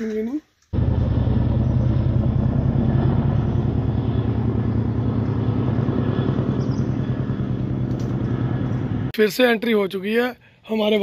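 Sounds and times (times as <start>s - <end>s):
helicopter flying overhead: 0.8s - 9.1s.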